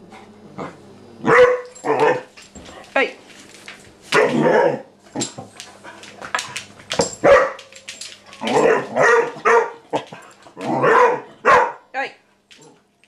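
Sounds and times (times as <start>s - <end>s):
puppy barking: 1.2s - 2.2s, 4.1s - 4.8s, 7.2s - 7.6s, 8.5s - 9.9s, 10.7s - 11.9s.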